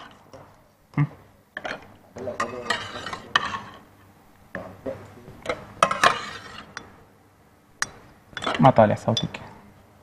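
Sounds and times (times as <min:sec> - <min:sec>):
spoons clinking against bowls: 0:01.6 - 0:03.8, 0:05.4 - 0:07.0, 0:07.8 - 0:09.5.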